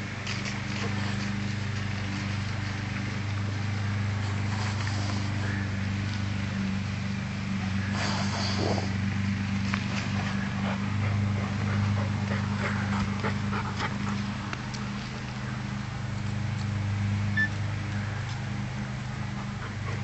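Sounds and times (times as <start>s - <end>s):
steady low hum: 0.0s - 20.0s
dog snuffling and scratching: 0.1s - 6.6s.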